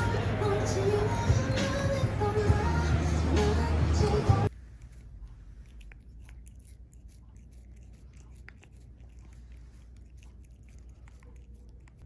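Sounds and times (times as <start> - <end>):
cat chewing crunchy stick: 4.5 - 12.0.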